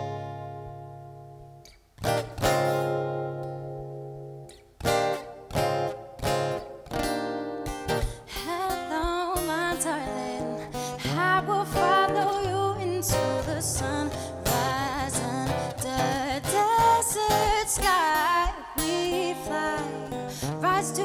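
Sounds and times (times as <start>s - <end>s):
acoustic guitar chords: 0.0s - 21.0s
woman singing: 8.1s - 21.0s.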